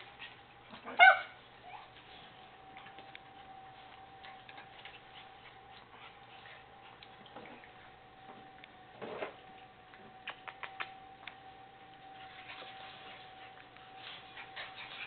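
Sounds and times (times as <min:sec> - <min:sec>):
faint steady whine: 0:00.0 - 0:15.0
puppies scuffling: 0:00.0 - 0:15.0
puppy claws clicking on concrete: 0:10.2 - 0:11.4.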